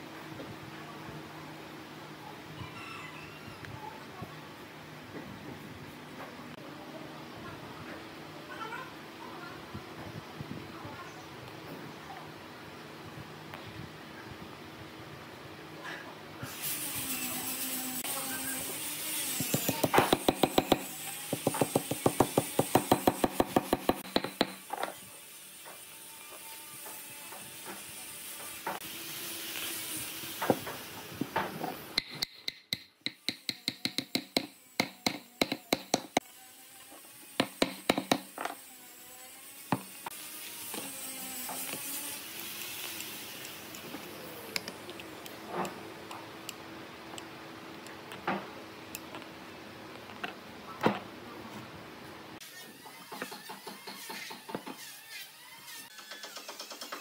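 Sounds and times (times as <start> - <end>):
hammer knocking wooden dowels: 19.5 - 24.6, 32.0 - 36.2, 37.4 - 38.3.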